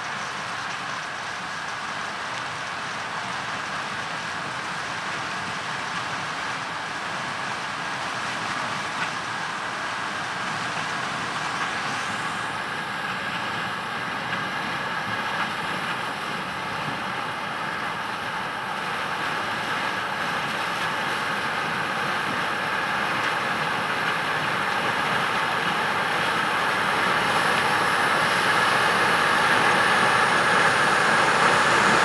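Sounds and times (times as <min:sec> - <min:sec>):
combine harvester threshing: 0:10.8 - 0:32.0.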